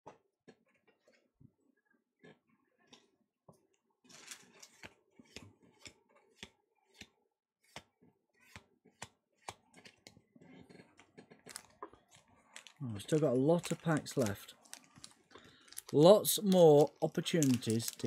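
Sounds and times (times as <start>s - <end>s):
foil packs rustling: 11.5s - 18.0s.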